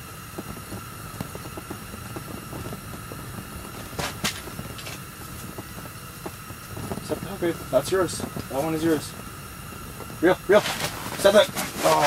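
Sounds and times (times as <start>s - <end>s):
faint steady whine: 0.0s - 12.0s
steady rushing noise: 0.0s - 12.0s.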